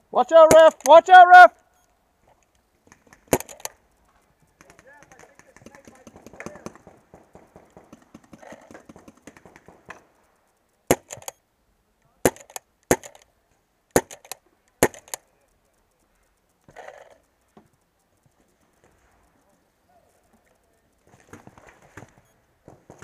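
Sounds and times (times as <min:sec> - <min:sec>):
faint clicks: 0:00.6 - 0:23.0
small scuffs and clicks: 0:12.4 - 0:23.0.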